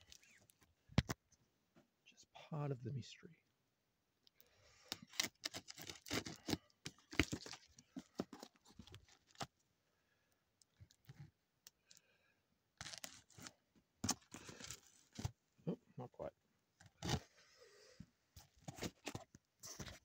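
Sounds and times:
box cutter slitting tape: 0:04.9 - 0:07.5
tape tearing: 0:04.9 - 0:09.5, 0:12.8 - 0:15.3
cardboard crackling: 0:05.1 - 0:09.5.

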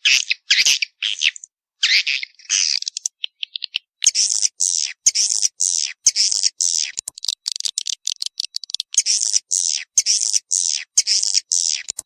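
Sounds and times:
harsh rasping bird chirps: 0:00.0 - 0:12.0
quick dry ticks: 0:04.0 - 0:12.0.

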